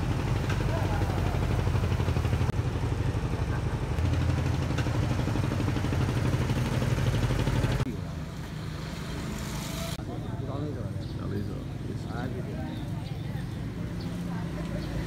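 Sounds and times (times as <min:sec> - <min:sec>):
boat engine running: 0:00.0 - 0:07.9
street noise: 0:00.0 - 0:15.0.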